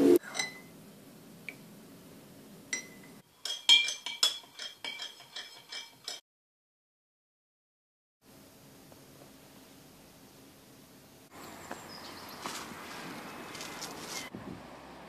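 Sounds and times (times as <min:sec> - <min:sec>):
spoon clinking in a drinking glass: 0:00.2 - 0:00.7, 0:02.7 - 0:06.2
teaspoon stirring in a ceramic mug: 0:02.8 - 0:06.2.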